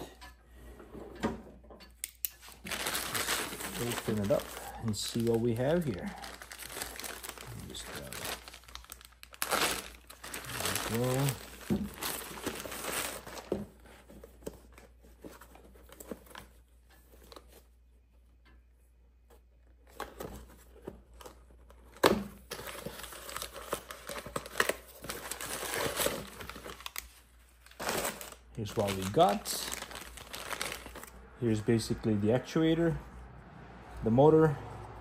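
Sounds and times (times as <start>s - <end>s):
plastic packaging crinkling: 2.4s - 13.5s, 22.5s - 31.2s.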